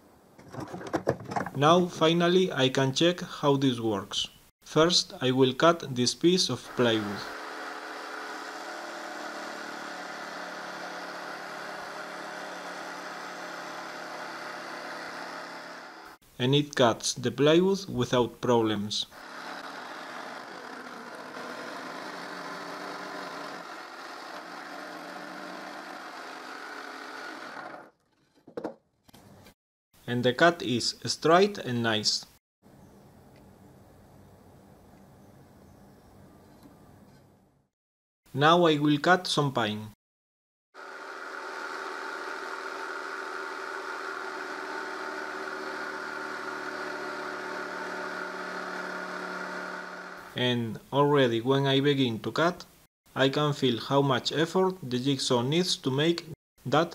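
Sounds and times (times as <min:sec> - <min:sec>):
electric jigsaw cutting plywood: 0:06.7 - 0:16.2, 0:19.2 - 0:28.0, 0:40.8 - 0:50.4.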